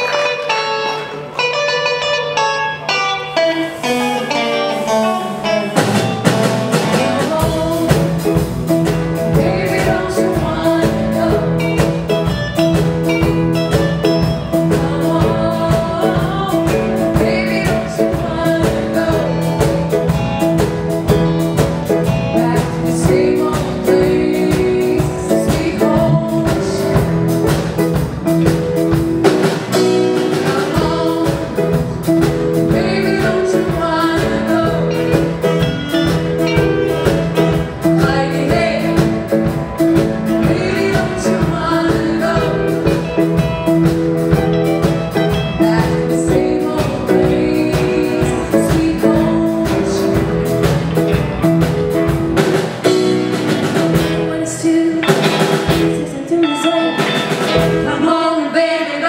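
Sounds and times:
live band with drums and guitar: 0:00.0 - 0:59.0
women singing: 0:03.6 - 0:08.4, 0:09.2 - 0:12.3, 0:14.4 - 0:20.2, 0:22.0 - 0:27.2, 0:30.1 - 0:35.7, 0:37.8 - 0:39.7, 0:40.3 - 0:43.5, 0:45.3 - 0:50.5, 0:54.1 - 0:59.0.

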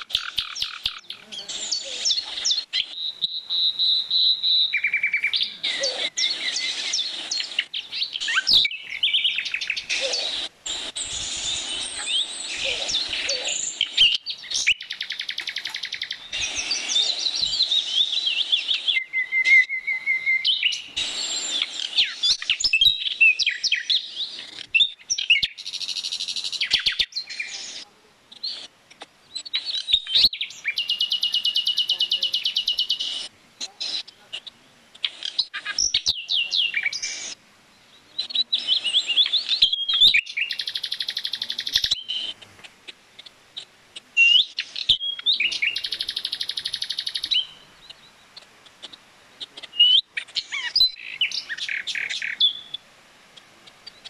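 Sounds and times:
fast repeated bird trill: 0:00.0 - 0:24.0, 0:38.2 - 0:42.4, 0:44.2 - 0:47.6
songbirds chirping and singing: 0:00.0 - 0:54.0.

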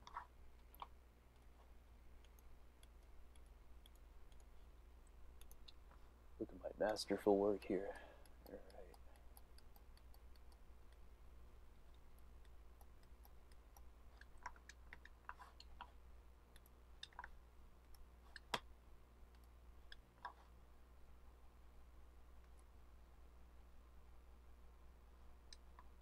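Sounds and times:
light regular ticking: 0:00.0 - 0:20.4
low steady hum: 0:00.0 - 0:26.0
computer mouse clicks: 0:02.2 - 0:05.9, 0:08.2 - 0:11.1, 0:11.8 - 0:18.7.

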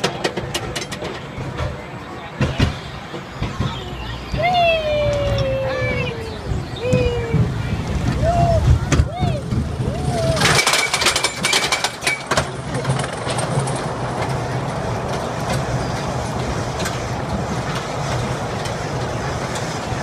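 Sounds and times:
ride rattling and clicking: 0:00.0 - 0:20.0
steady rushing noise: 0:00.0 - 0:20.0.

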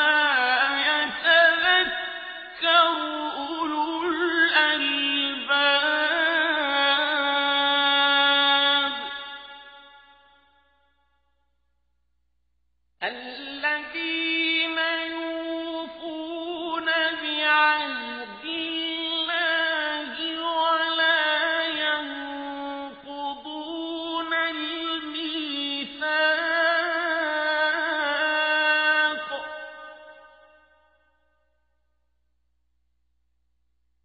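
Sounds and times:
man chanting melodic recitation: 0:13.0 - 0:29.8.

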